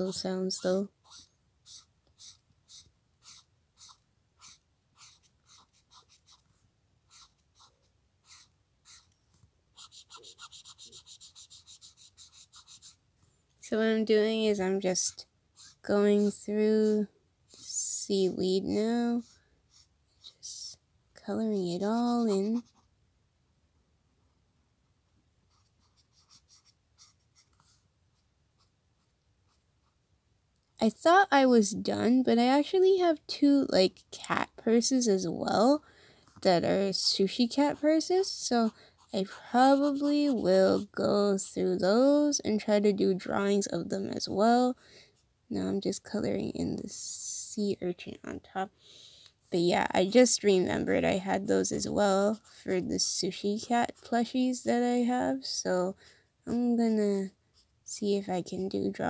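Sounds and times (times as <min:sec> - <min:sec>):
marker scratching on paper: 0:00.0 - 0:13.0, 0:14.3 - 0:20.7, 0:21.9 - 0:22.9, 0:25.5 - 0:30.0, 0:36.3 - 0:41.7, 0:50.0 - 0:54.5.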